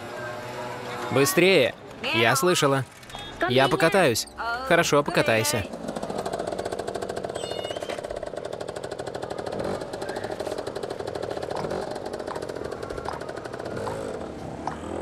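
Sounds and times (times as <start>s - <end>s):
small motorbike engine putter: 5.7s - 15.0s.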